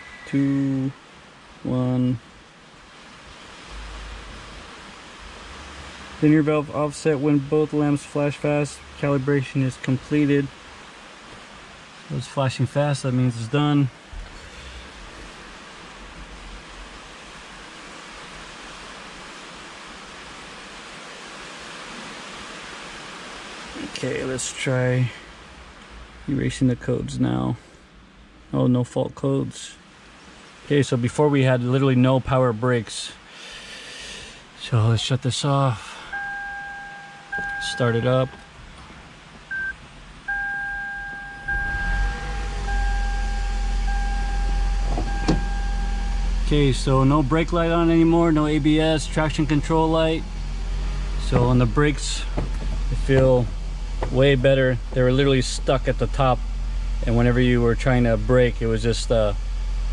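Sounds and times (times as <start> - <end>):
steady background hiss: 0.0 - 59.9
low machinery hum: 34.6 - 59.9
dashboard beep: 36.1 - 38.5, 39.5 - 46.4
electronic chime tone: 36.1 - 38.5, 39.5 - 46.5.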